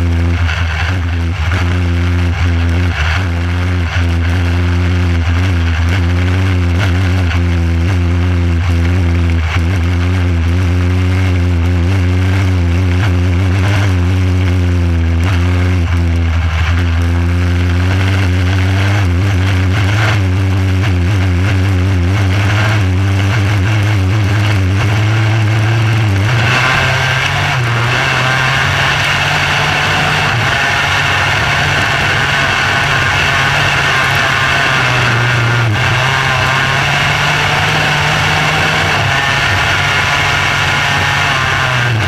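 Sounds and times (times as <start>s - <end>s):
race car engine running: 0.0s - 42.0s.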